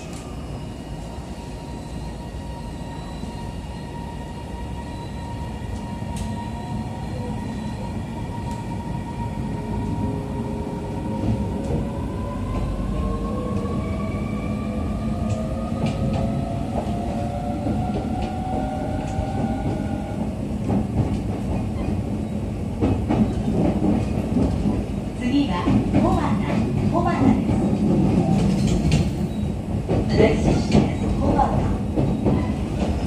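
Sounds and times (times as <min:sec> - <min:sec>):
train running gear rumble: 0:15.0 - 0:33.0.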